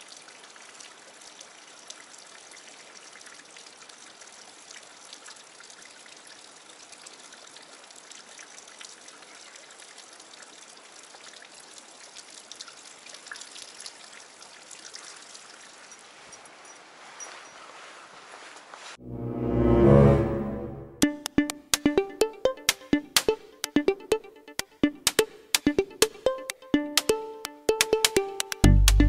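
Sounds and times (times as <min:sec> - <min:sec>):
water trickling over rock: 0:00.0 - 0:18.0
water drip ticks: 0:00.2 - 0:16.8, 0:21.0 - 0:29.0.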